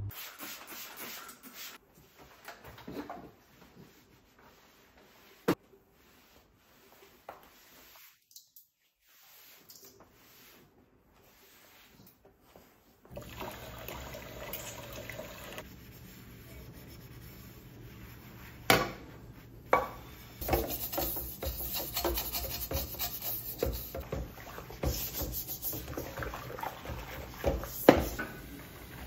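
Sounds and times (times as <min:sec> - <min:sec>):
sponge rubbing dishes: 0:19.8 - 0:28.2
dish brush scrubbing pot: 0:19.8 - 0:29.0.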